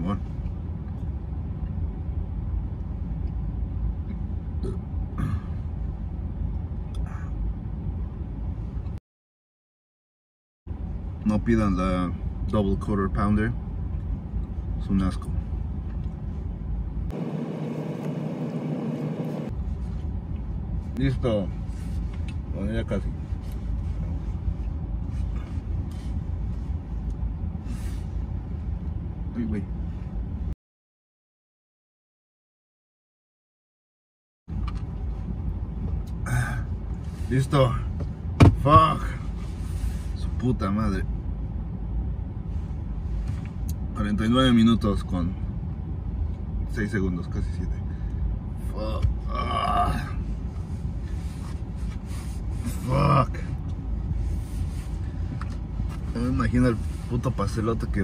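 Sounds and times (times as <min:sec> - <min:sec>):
low rumble inside car: 0:00.0 - 0:09.0, 0:10.7 - 0:30.6, 0:34.5 - 0:58.0
car engine idling: 0:17.0 - 0:20.8
faint short rustles: 0:50.4 - 0:52.9, 0:53.6 - 0:57.4.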